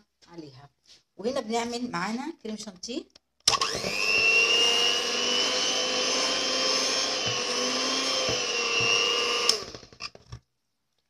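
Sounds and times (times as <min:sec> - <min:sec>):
electric hand mixer whining: 0:03.5 - 0:10.2.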